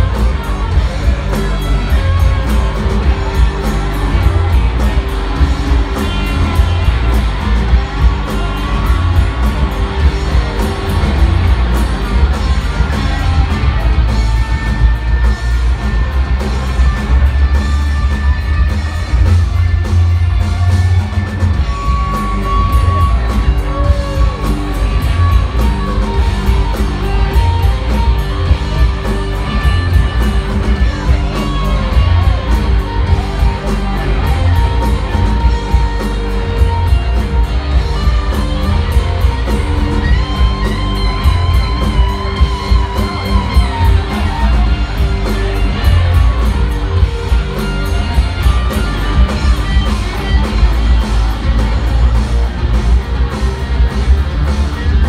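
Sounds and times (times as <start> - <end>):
bass guitar: 0.0 - 55.0
bending lead guitar notes: 0.0 - 55.0
drums: 0.0 - 55.0
electric guitars: 0.0 - 55.0.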